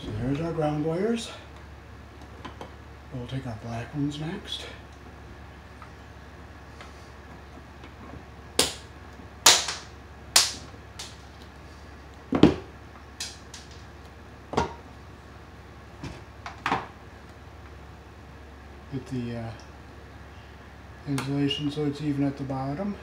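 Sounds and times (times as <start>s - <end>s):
wire strippers snapping: 8.6s - 11.5s, 13.2s - 13.9s.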